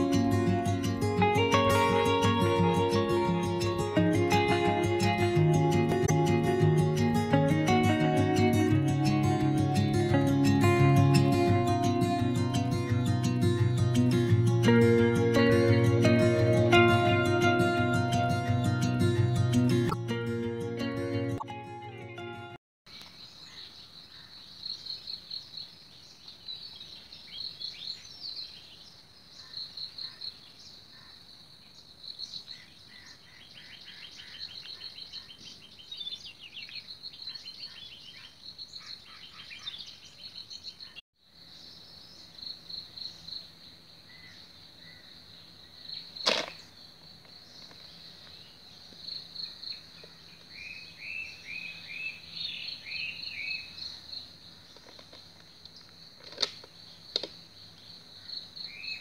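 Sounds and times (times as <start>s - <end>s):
birds chirping: 22.9s - 41.0s, 47.4s - 56.0s
insects trilling: 41.2s - 59.0s.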